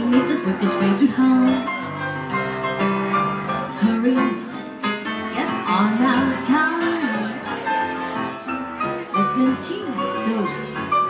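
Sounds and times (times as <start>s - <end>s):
woman singing into a microphone: 0.0s - 1.7s, 3.8s - 4.6s, 5.4s - 7.4s
jazz band accompaniment: 0.0s - 11.0s.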